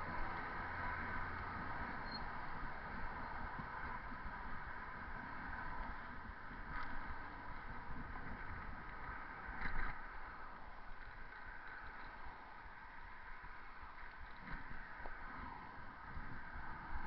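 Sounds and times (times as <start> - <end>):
road traffic: 0.0 - 6.2
wind buffeting microphone: 0.0 - 17.0.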